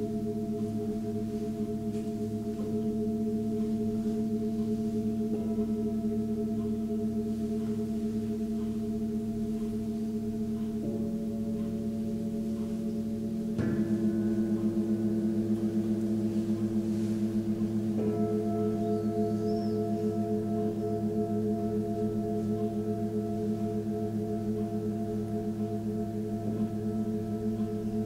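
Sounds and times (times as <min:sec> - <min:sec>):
singing bowls ringing: 0:00.0 - 0:28.0
singing bowl struck: 0:00.1 - 0:28.0.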